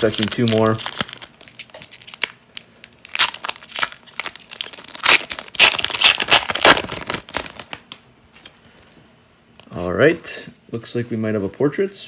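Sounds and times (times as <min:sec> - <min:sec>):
foil wrapper crinkling and tearing: 0:00.0 - 0:07.9.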